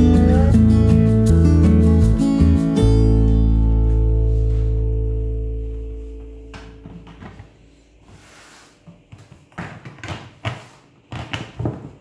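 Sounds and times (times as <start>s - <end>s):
plastic knocks and rustles: 6.6s - 7.6s, 8.8s - 12.0s.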